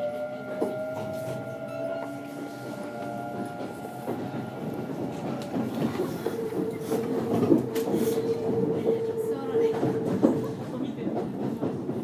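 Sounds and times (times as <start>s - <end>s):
train wheels clicking over rails: 0.5s - 12.0s.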